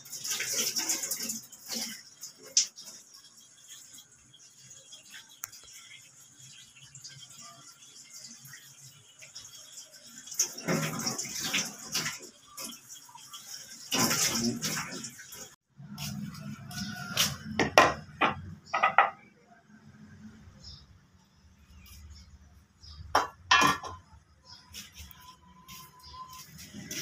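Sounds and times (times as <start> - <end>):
tap water splashing into sink: 10.3 - 12.8, 13.9 - 15.4
knocks and clatters: 17.4 - 19.3, 23.1 - 24.2.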